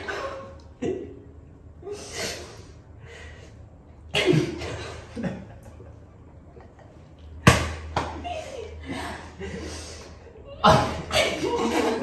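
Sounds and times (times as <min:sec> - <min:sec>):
people stifling laughter: 0:08.6 - 0:12.0.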